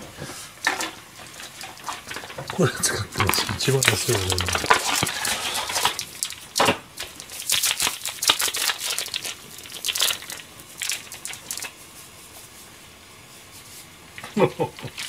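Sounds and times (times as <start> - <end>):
plastic packet crinkling and tearing: 2.9 - 11.8.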